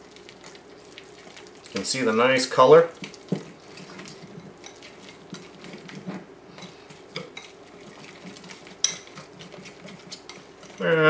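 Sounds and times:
whisk scraping a glass bowl: 0:03.0 - 0:11.0.

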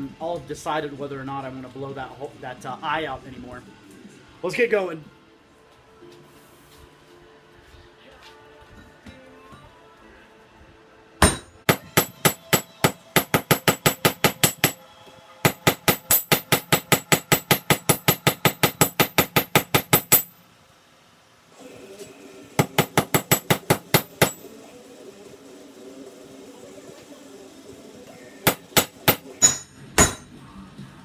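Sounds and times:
hammer ringing on anvil: 0:11.2 - 0:14.8, 0:15.5 - 0:20.4, 0:22.6 - 0:24.5, 0:28.5 - 0:30.4.

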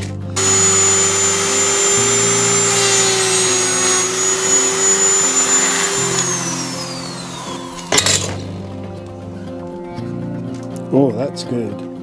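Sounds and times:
rotary tool boring into wood: 0:00.4 - 0:08.5.

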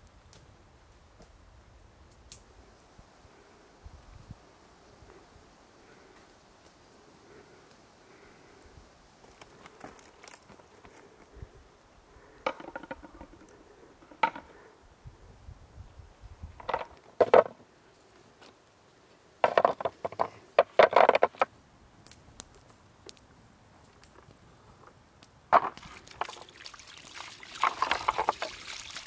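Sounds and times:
footsteps on rocky scree: 0:09.2 - 0:11.3.

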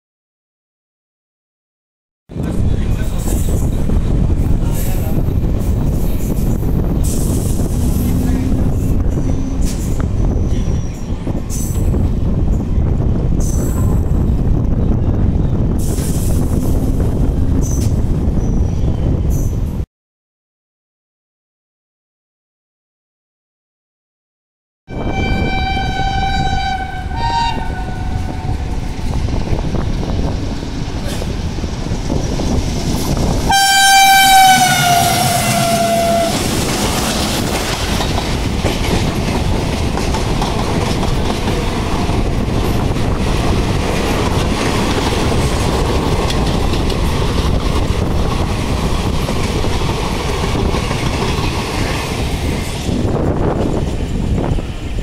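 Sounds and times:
train coaches clickety-clack: 0:02.4 - 0:19.8, 0:25.2 - 0:55.0
two-tone locomotive horn: 0:24.9 - 0:28.8, 0:33.5 - 0:36.5.

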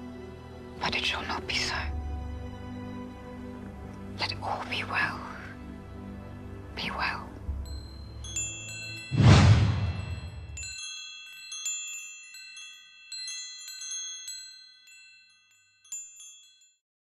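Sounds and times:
high ringing chimes: 0:07.6 - 0:09.2, 0:09.8 - 0:16.7.

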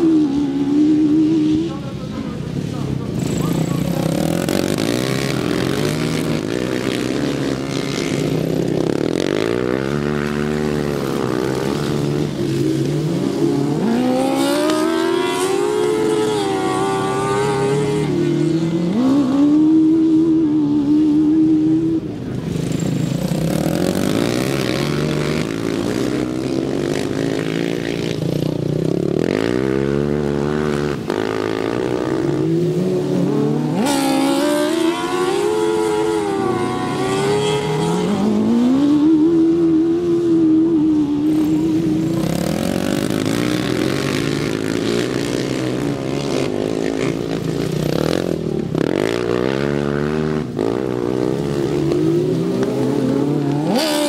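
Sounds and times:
racing lawnmower engines revving: 0:00.0 - 0:54.0.

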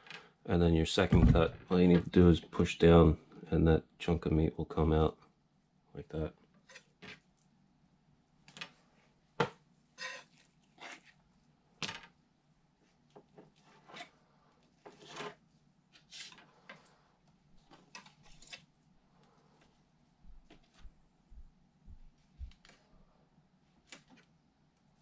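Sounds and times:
knife cutting and scraping fish: 0:06.6 - 0:07.4, 0:10.0 - 0:11.3, 0:13.4 - 0:16.9.

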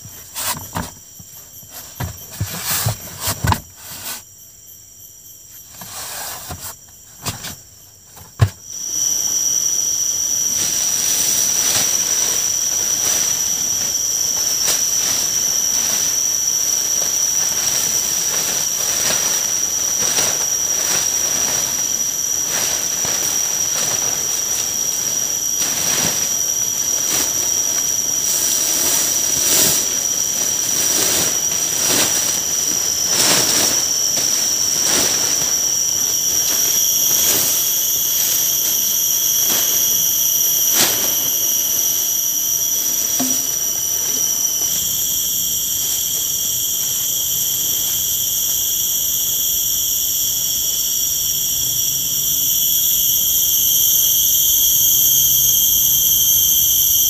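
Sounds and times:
handling knocks and rustles: 0:00.0 - 0:04.2, 0:05.7 - 0:08.7, 0:43.0 - 0:44.4
cicada chorus: 0:00.0 - 0:57.0.

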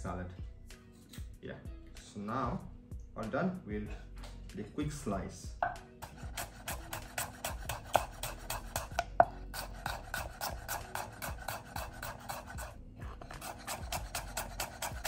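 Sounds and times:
knife chopping on wooden board: 0:05.6 - 0:15.0.

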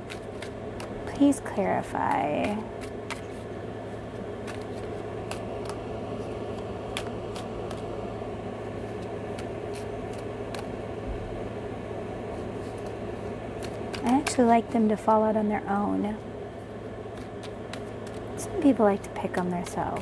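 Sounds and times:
cards being shuffled: 0:00.0 - 0:03.5, 0:04.4 - 0:08.0, 0:08.8 - 0:10.8, 0:12.3 - 0:14.5, 0:17.1 - 0:20.0
steady low hum: 0:00.0 - 0:20.0.

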